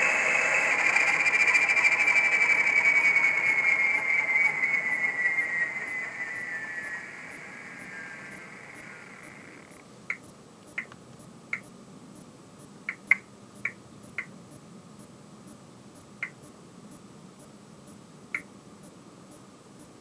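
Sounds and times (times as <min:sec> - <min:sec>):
short sharp high chirps: 0:00.0 - 0:09.6
steady high tone: 0:00.0 - 0:09.8
faint steady hum: 0:00.0 - 0:20.0.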